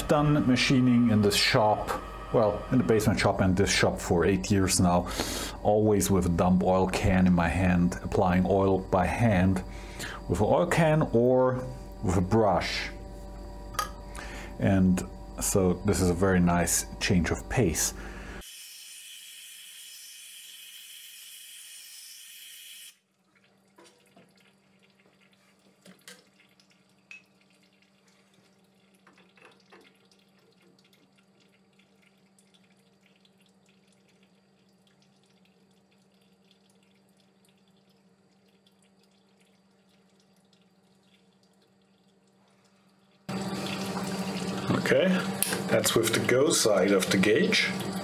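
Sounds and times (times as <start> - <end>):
cutting oil hissing from hose: 0.0 - 11.1, 43.3 - 48.0
faint low hum: 0.0 - 18.4.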